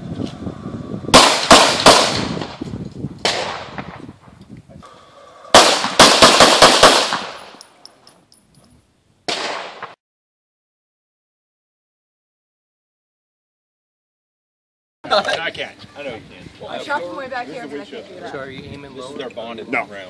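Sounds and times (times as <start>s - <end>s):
handgun shots echoing: 5.6s - 7.8s, 9.3s - 10.0s.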